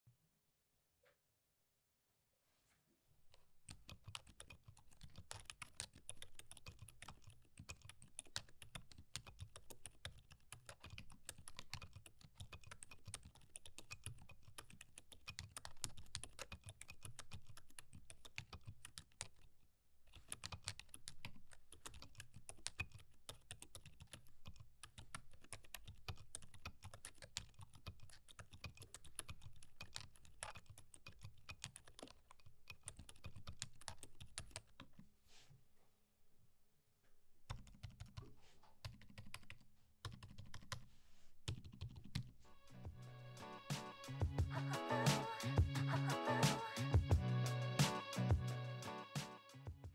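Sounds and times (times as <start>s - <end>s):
soft muted keyboard typing: 3.3s - 35.1s, 37.4s - 43.9s.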